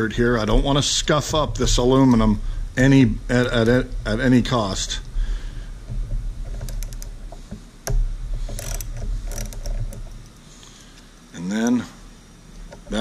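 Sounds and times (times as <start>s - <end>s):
low hum: 0.0s - 13.0s
metal clicks and ticks: 6.4s - 10.4s.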